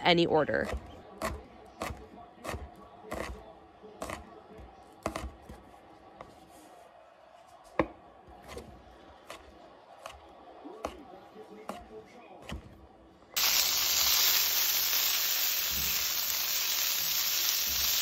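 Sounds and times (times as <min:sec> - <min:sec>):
knife chopping on wooden board: 0:00.6 - 0:03.4, 0:04.0 - 0:04.3, 0:05.0 - 0:05.6.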